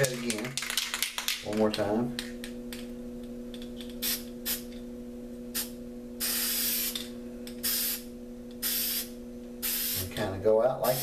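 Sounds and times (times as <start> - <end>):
low hum: 1.4 - 10.5
spray can hissing: 5.6 - 7.0, 7.6 - 8.0, 8.6 - 10.1.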